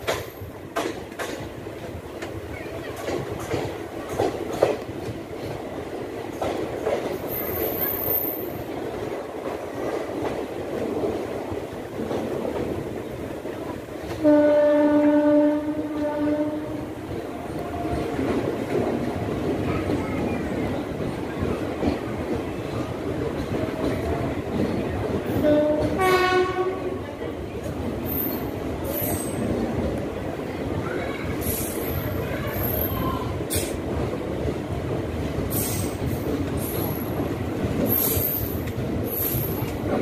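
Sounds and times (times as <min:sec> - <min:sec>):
wheels clicking over rail joints: 0:00.0 - 0:15.2
train wheels rumbling on rails: 0:00.0 - 0:40.0.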